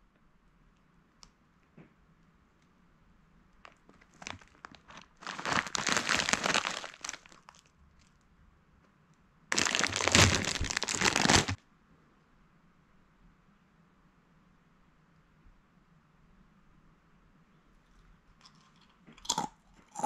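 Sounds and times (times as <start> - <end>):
plastic snack bag crinkling: 3.6 - 8.1, 9.5 - 11.6.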